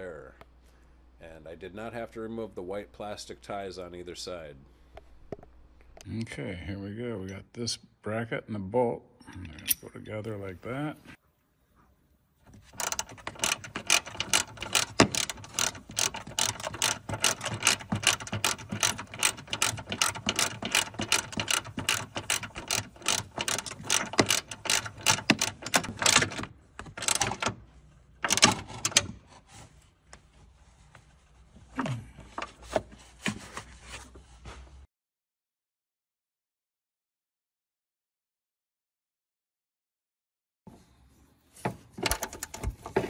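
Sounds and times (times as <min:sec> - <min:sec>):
ratchet wrench clicking: 0:12.8 - 0:26.3.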